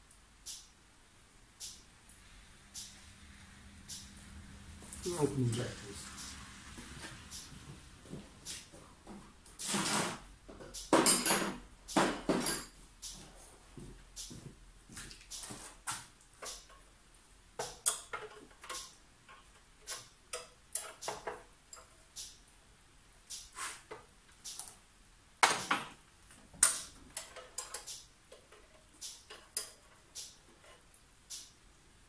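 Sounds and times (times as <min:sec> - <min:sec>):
spanners clinking on metal: 0:12.2 - 0:12.8.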